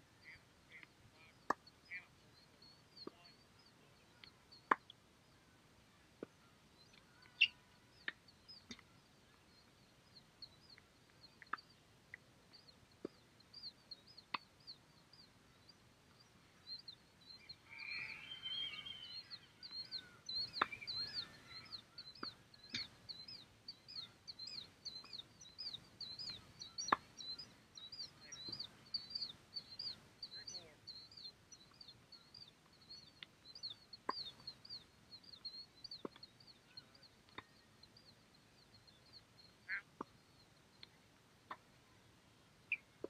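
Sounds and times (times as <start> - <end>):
bird chirping: 0.0 - 43.0
tennis balls being struck: 1.4 - 1.6, 4.7 - 4.9, 20.5 - 21.0, 26.8 - 27.2, 36.0 - 36.2.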